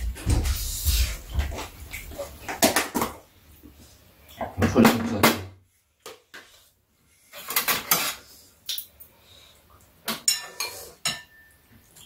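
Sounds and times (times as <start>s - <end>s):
utensils clinking against bowls: 10.1s - 11.6s.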